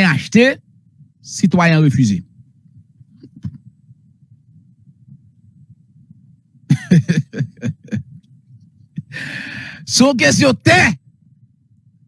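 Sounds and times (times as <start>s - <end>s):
low steady rumble: 0.0s - 12.0s
person's voice: 9.8s - 11.0s.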